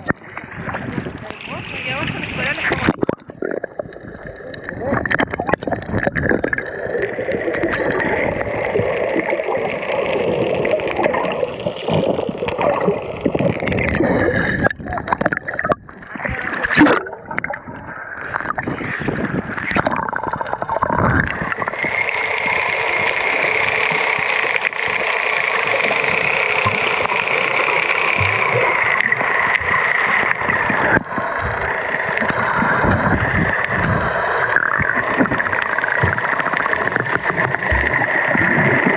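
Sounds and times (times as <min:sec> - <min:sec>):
boat motor drone underwater: 0:00.0 - 0:38.9
water splashing and gurgling: 0:00.0 - 0:38.9.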